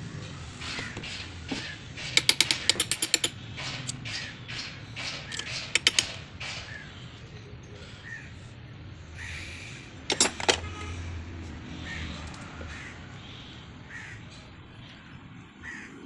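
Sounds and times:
ratchet wrench clicking: 2.0s - 6.6s.

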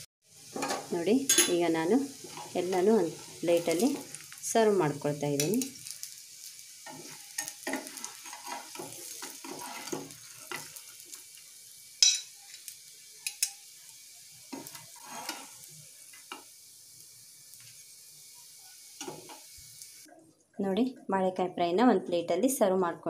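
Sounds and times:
hot oil sizzling: 0.0s - 20.1s
metal spatula scraping pan: 0.5s - 4.2s, 6.8s - 10.8s, 14.6s - 15.6s
clinks on glass plate: 12.0s - 12.3s.

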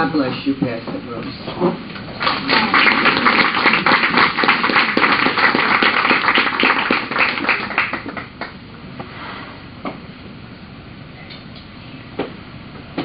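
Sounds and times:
congregation applauding: 2.1s - 8.6s.

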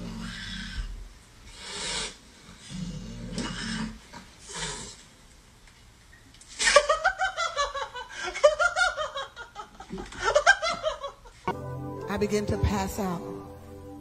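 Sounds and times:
person laughing hard: 6.6s - 11.4s.

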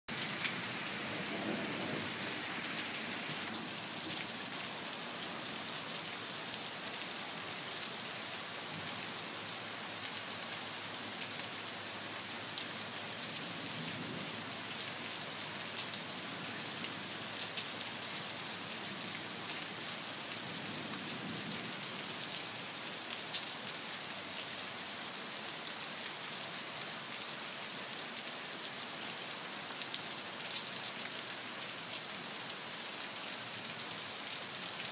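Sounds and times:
steady rain hiss: 0.1s - 34.9s.

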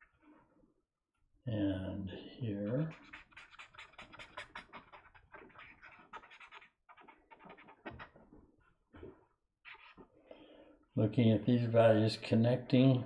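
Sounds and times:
brush pen scratching on paper: 2.8s - 10.1s.

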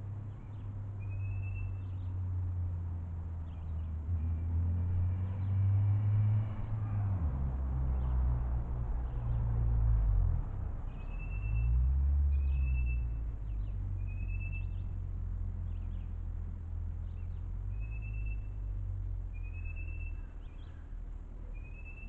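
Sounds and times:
high bird chirps: 21.6s - 22.0s.

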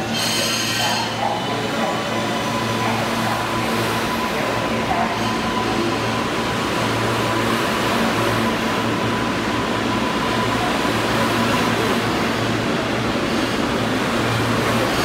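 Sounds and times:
subway train rushing: 0.0s - 15.0s.

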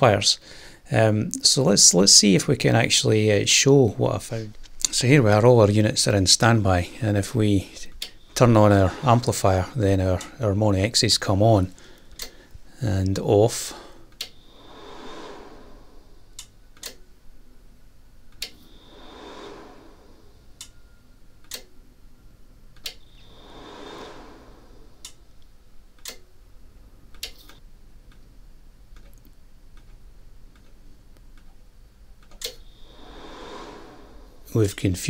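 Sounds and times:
soft rushing swells: 0.0s - 11.8s, 12.5s - 21.4s, 23.0s - 25.8s, 32.6s - 35.0s
amplifier relays clicking: 12.0s - 13.2s, 21.4s - 21.8s, 25.0s - 26.4s, 27.1s - 28.3s, 28.9s - 32.7s.

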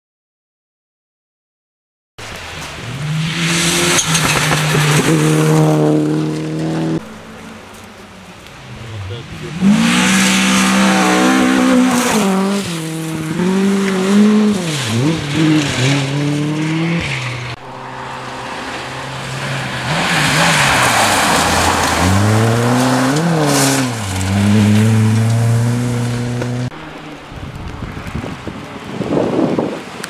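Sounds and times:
rally car engines revving: 2.3s - 30.0s
tyres and thrown gravel hiss: 17.0s - 26.2s.

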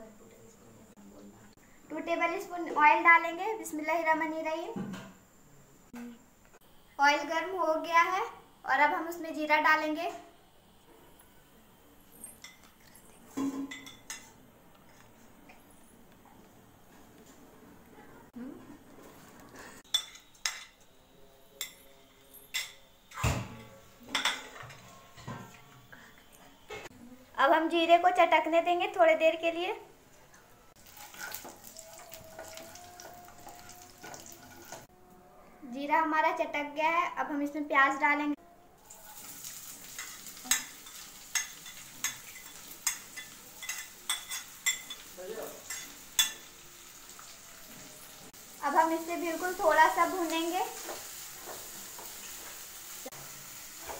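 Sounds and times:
onions sizzling in hot oil: 30.8s - 34.9s, 38.8s - 53.9s
metal spoon clinking on plate: 40.0s - 46.5s.

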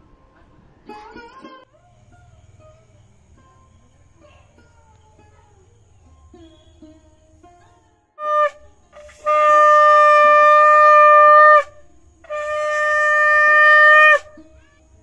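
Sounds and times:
conch shell blown: 8.2s - 14.5s.

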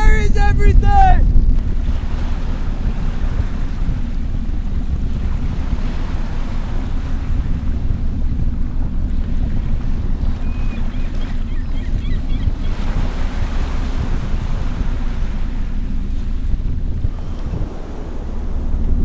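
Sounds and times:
ocean surf: 0.0s - 7.8s, 12.7s - 19.0s
wave washing in: 0.0s - 10.5s, 12.6s - 19.0s
wind buffeting microphone: 0.0s - 19.0s.

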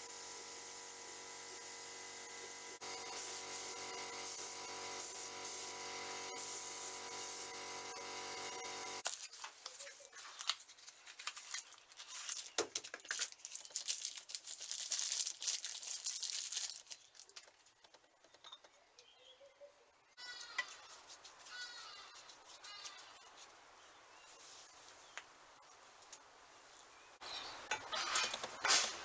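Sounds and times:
paper towel rustling and crinkling: 9.0s - 17.4s
birds chirping: 16.9s - 20.9s, 26.7s - 28.2s.

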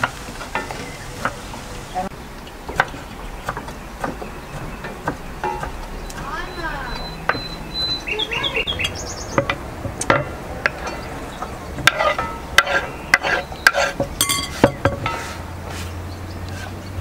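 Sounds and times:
bird chirping: 0.6s - 10.1s, 10.8s - 14.6s, 15.8s - 17.0s
utensil scraping a cooking pot: 9.4s - 16.9s.

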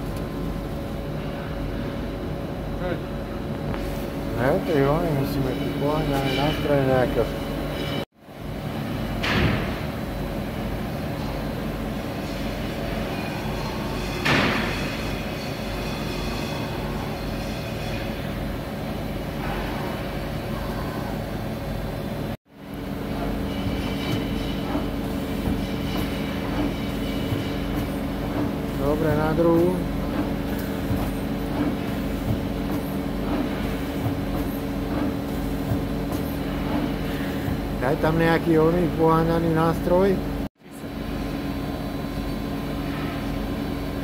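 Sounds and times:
lathe mechanical hum: 0.0s - 44.0s
loud mechanical clunk with rush: 9.2s - 9.9s, 14.1s - 15.1s.

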